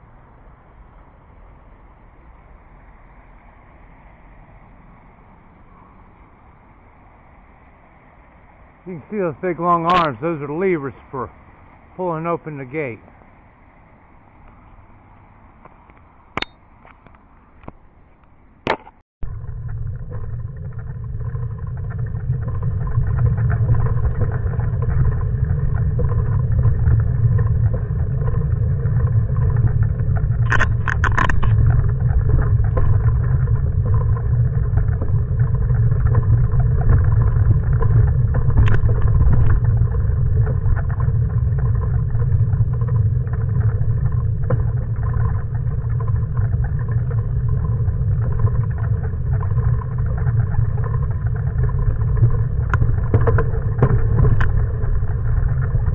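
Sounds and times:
tyre and wind rumble: 13.6 - 55.9.

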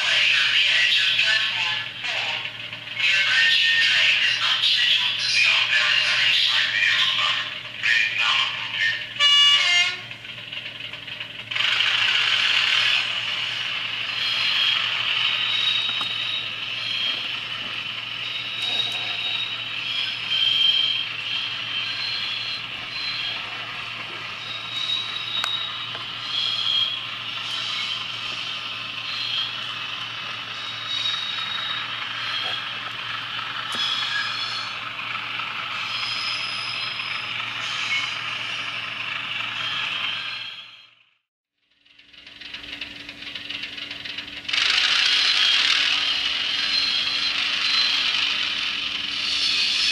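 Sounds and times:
model diesel engine sound: 0.0 - 49.9
thin high whistling tones: 14.1 - 32.9, 33.6 - 34.9, 35.7 - 38.8, 46.3 - 49.9
model train wheels rattling: 42.1 - 49.7.

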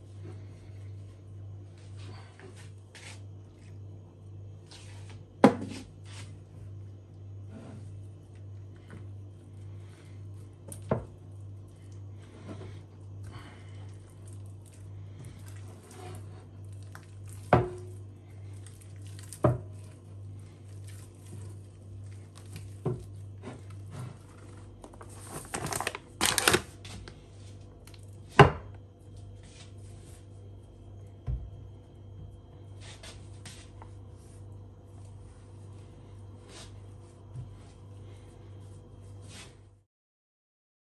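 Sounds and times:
hands kneading dough: 0.0 - 3.8, 7.8 - 25.9
steady low hum: 0.0 - 39.8
paper rustling: 24.9 - 26.7.

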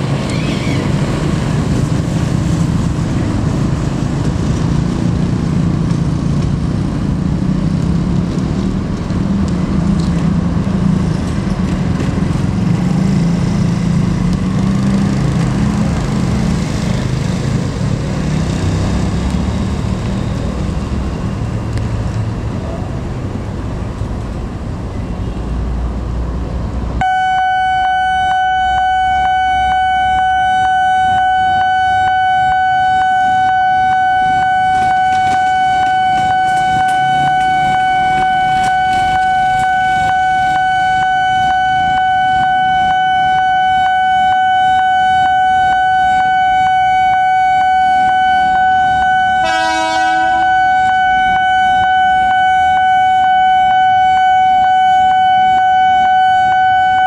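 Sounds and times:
level crossing alarm tone: 27.0 - 57.0
train horn toot: 49.0 - 51.4.

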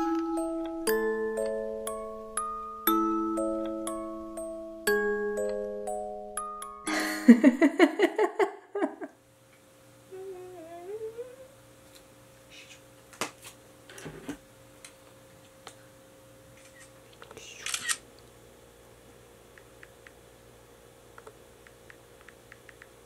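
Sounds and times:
bright chime-like music notes: 0.0 - 7.5
woman humming: 10.1 - 11.6.

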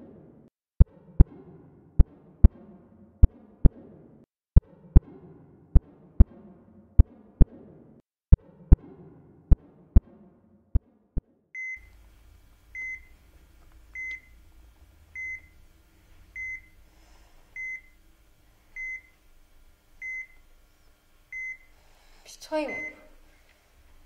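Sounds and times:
heart monitor beeping: 11.6 - 18.1, 18.7 - 21.8, 22.7 - 23.2.

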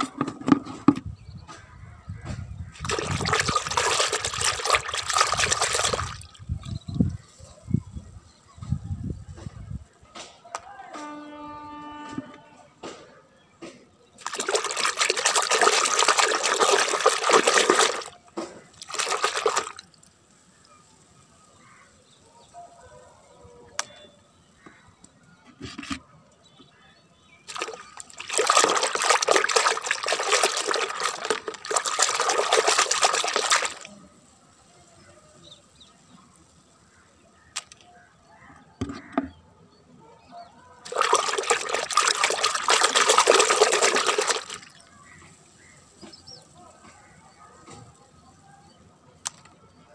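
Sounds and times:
hand splashing water in bucket: 2.7 - 6.8, 14.2 - 20.0, 27.5 - 33.9, 40.8 - 45.2.

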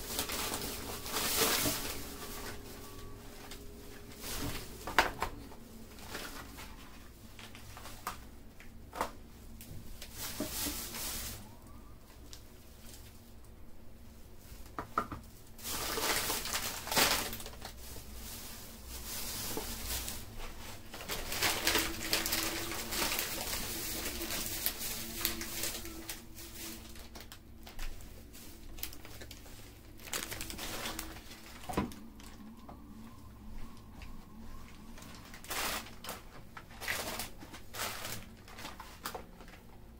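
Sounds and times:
plastic bags rustling and crinkling: 0.0 - 39.9
items knocking on tiled floor: 14.8 - 15.2.

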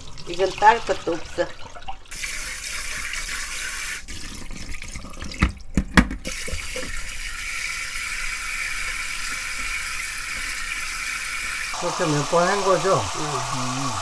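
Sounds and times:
tap running into a pot: 4.4 - 7.0.

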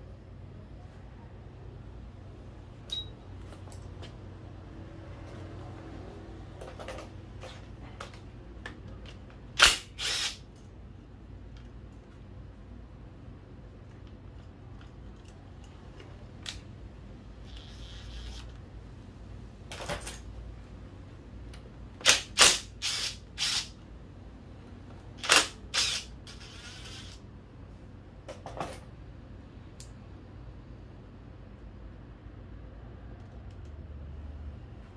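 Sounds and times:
low steady hum: 0.0 - 34.9
tools and metal parts clinking: 19.7 - 20.4, 28.3 - 28.9.

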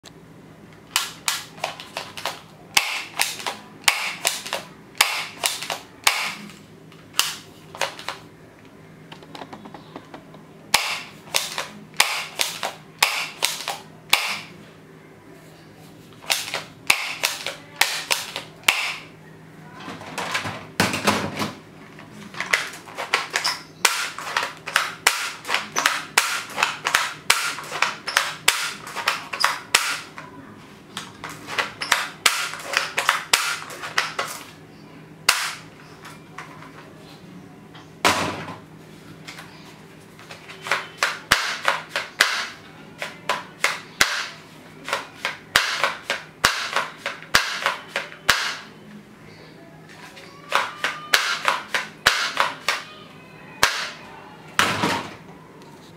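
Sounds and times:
plastic toy gun shots: 0.9 - 6.5, 7.2 - 8.2, 10.7 - 14.5, 16.2 - 19.1, 22.5 - 30.1, 31.5 - 34.4, 35.3 - 35.7, 40.6 - 48.7, 50.5 - 52.8, 53.6 - 54.0.

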